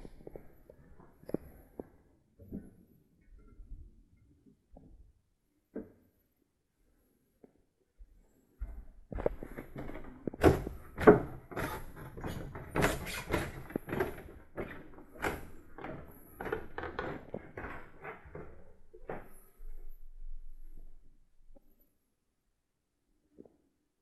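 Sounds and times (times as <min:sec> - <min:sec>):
footsteps on wooden stairs: 0:08.6 - 0:20.0.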